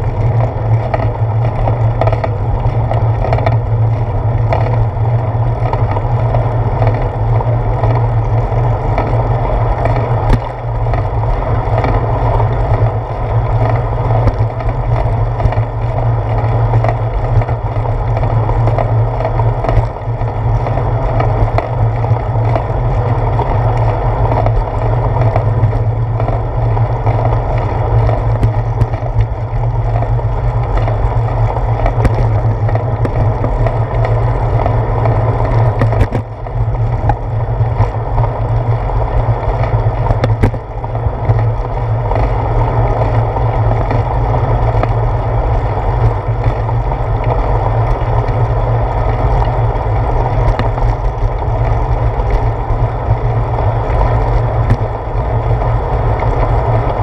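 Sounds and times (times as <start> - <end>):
bicycle tyres rolling on concrete: 0.0 - 57.0
wind on microphone: 0.0 - 57.0.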